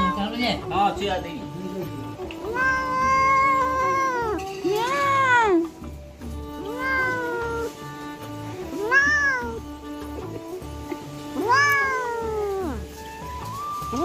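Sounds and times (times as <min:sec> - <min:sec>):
cat meowing: 0:00.0 - 0:00.3, 0:02.2 - 0:05.7, 0:06.6 - 0:07.9, 0:08.6 - 0:09.7, 0:11.3 - 0:12.9
background music with beat: 0:00.0 - 0:14.0.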